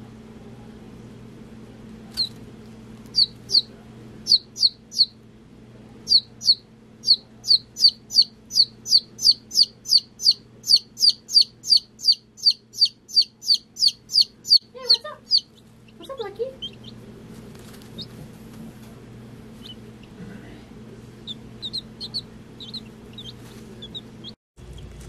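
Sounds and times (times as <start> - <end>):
faint low hum: 0.0 - 25.0
chick distress peeps: 6.1 - 17.0, 21.3 - 24.1.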